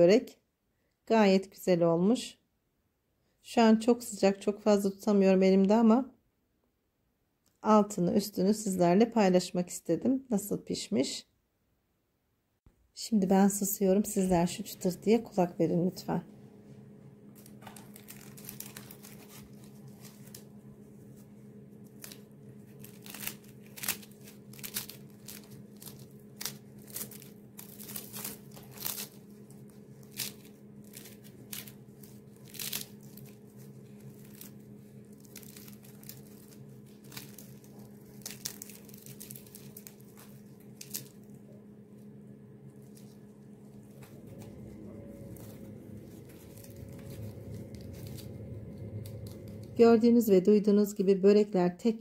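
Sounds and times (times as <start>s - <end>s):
low steady hum: 12.7s - 52.0s
pastry crackling and crunching: 17.3s - 49.8s.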